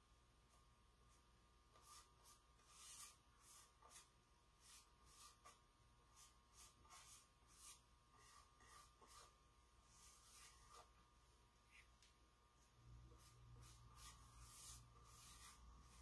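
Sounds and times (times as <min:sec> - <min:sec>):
paintbrush swishing on wood: 0:06.2 - 0:10.9, 0:13.1 - 0:16.0.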